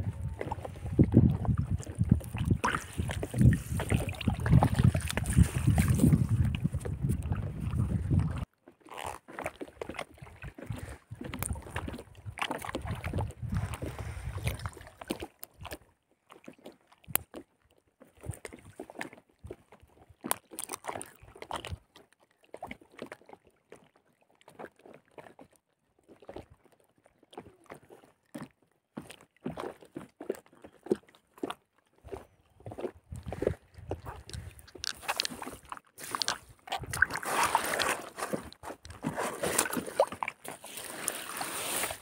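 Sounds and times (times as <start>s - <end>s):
wind buffeting microphone: 0.0s - 8.5s, 10.5s - 14.6s, 32.6s - 34.8s
water sloshing and splashing: 0.0s - 25.5s, 26.1s - 42.0s.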